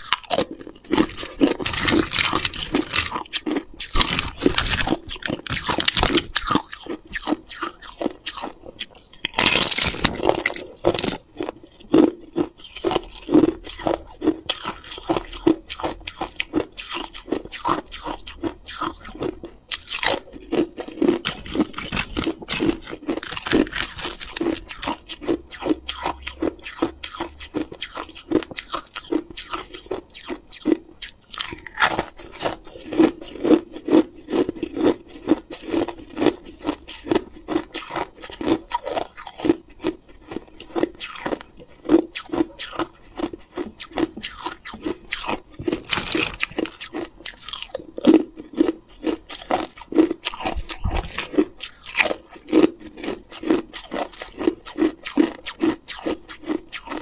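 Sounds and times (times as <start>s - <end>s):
ice chewing crunch: 0.0s - 57.0s.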